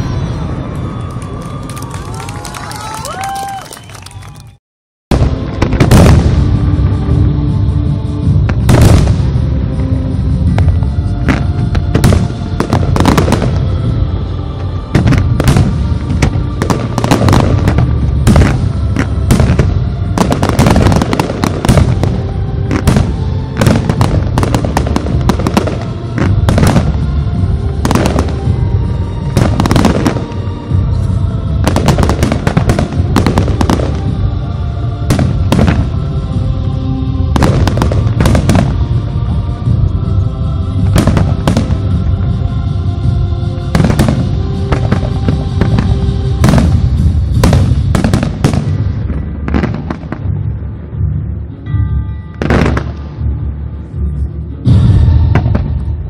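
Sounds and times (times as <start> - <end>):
music playing: 0.0 - 56.0.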